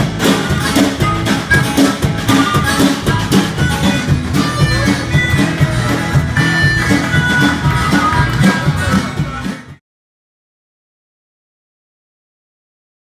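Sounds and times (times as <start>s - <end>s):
acoustic guitar strumming: 0.0s - 9.8s.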